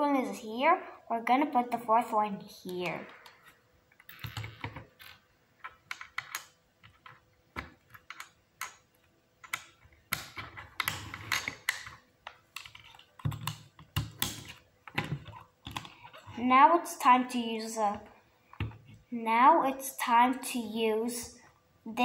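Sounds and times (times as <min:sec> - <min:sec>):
plastic parts clicking: 0:02.8 - 0:16.3.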